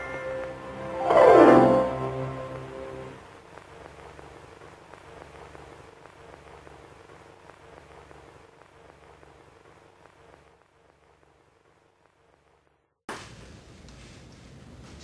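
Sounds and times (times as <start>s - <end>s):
faint steady hum: 0.0s - 15.0s
crackling surface clicks: 3.2s - 12.6s.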